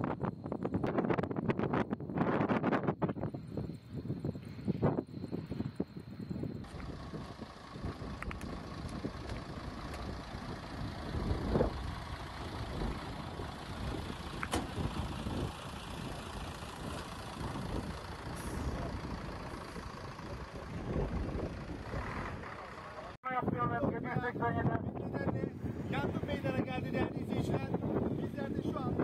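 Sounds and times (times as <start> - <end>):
fire truck engine rumbling: 0.0 - 23.2, 23.9 - 29.0.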